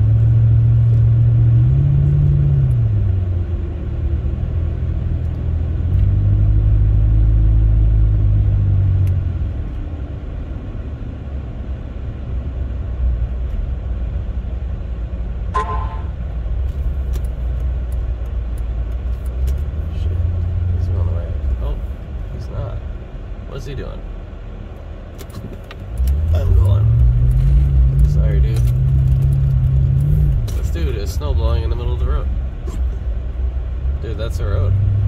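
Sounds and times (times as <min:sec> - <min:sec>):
tyre and road rumble: 0:00.0 - 0:14.5, 0:15.2 - 0:35.0
car engine rumbling: 0:00.0 - 0:35.0
short pitched beep: 0:15.6 - 0:16.2.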